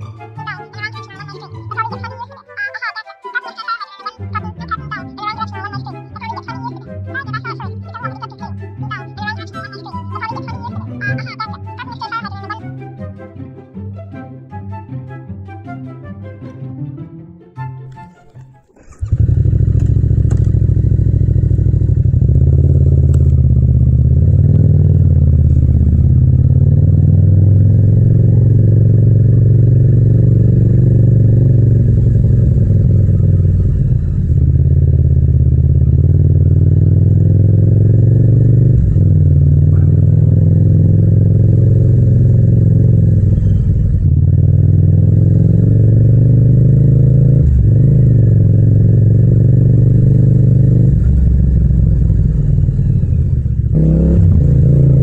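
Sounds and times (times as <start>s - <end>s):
motorcycle engine running: 18.7s - 55.0s.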